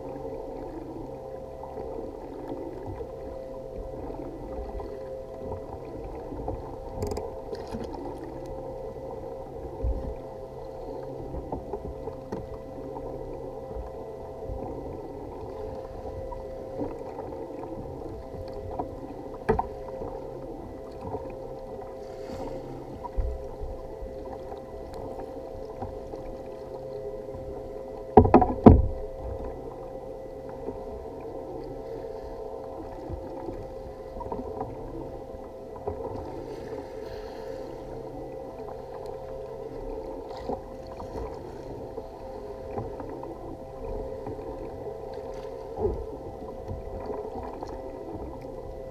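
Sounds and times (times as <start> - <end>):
water lapping against hull: 0.0 - 48.9
small knocks: 28.1 - 29.0.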